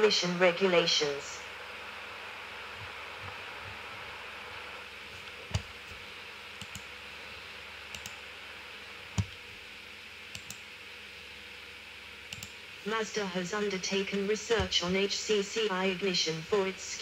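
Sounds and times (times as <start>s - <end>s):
faint steady hiss: 0.0s - 17.0s
computer mouse clicking: 5.2s - 6.0s, 6.6s - 6.9s, 7.9s - 8.2s, 10.3s - 10.6s, 12.3s - 12.6s.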